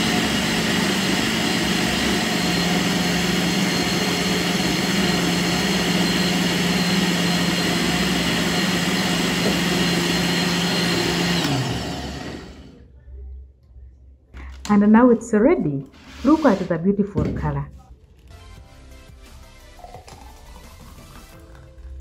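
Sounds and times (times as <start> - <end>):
blender running: 0.0 - 12.8.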